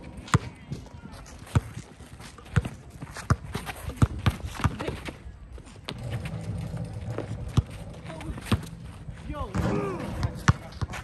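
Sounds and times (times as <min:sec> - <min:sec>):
basketball bouncing: 0:05.9 - 0:11.0.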